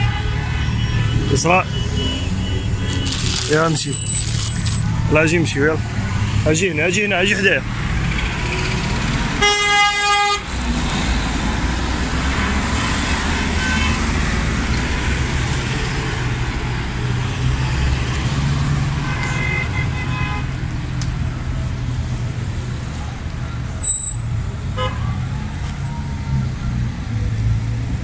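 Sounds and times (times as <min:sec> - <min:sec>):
road traffic rumbling: 0:00.0 - 0:28.0
car horn blaring: 0:09.4 - 0:10.5, 0:12.3 - 0:14.2, 0:24.8 - 0:25.3
distant car horns: 0:09.4 - 0:10.5.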